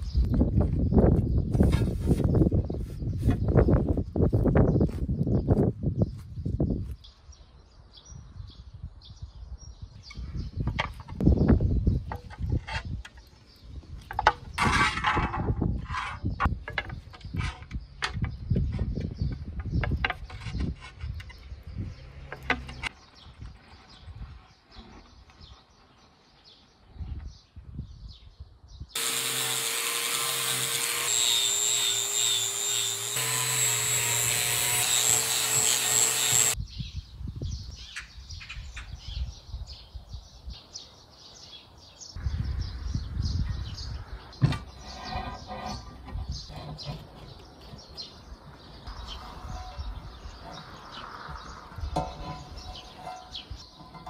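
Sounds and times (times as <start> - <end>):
power tool running: 29.0 - 36.6.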